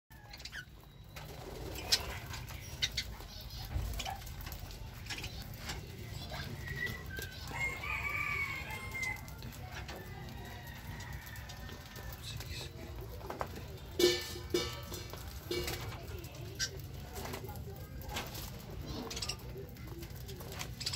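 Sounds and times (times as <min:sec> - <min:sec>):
budgerigars chirping: 0:01.6 - 0:04.3.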